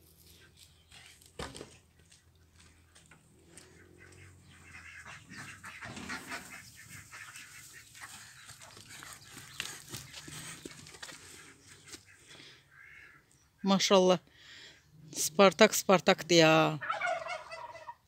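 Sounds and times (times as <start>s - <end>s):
faint farmyard animal calls: 0.0s - 15.2s, 16.6s - 18.0s.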